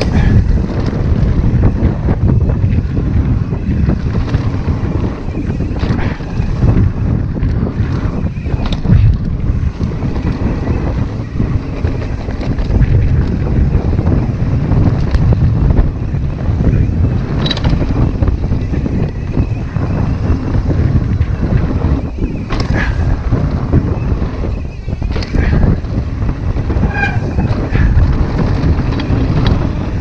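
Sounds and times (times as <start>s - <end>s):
bike clicks and knocks: 0.0s - 30.0s
bike tyres rumbling over rocks: 0.0s - 30.0s
wind buffeting microphone: 0.0s - 30.0s.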